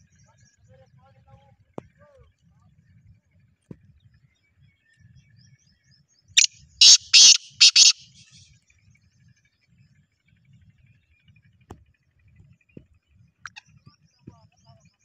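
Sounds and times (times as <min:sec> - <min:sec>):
faint bird chirps: 0:04.0 - 0:08.4
harsh rasping bird call: 0:06.4 - 0:08.4.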